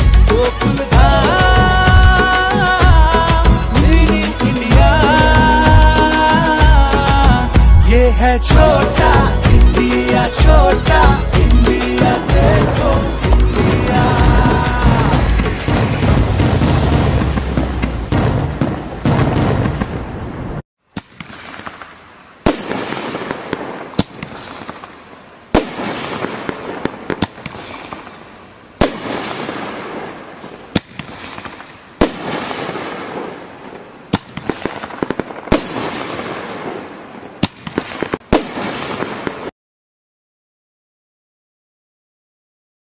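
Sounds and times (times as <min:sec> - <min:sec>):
song playing: 0:00.0 - 0:17.2
crackling hiss: 0:00.0 - 0:39.5
firecrackers banging: 0:00.0 - 0:39.5.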